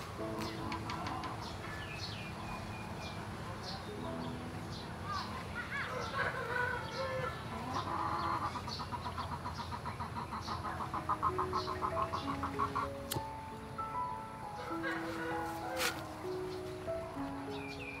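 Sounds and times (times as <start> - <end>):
chickens clucking: 0.4 - 1.8, 5.1 - 13.3, 14.6 - 16.7.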